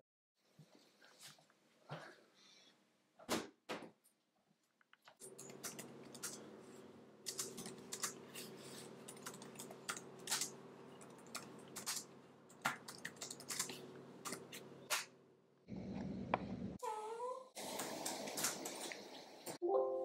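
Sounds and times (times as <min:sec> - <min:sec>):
laptop keyboard typing: 0:07.3 - 0:14.7.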